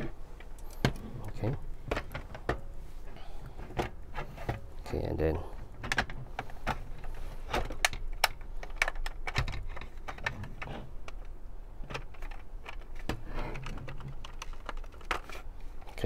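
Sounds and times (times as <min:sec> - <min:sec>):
plastic parts clicking and knocking: 0:00.4 - 0:02.7, 0:05.6 - 0:16.0.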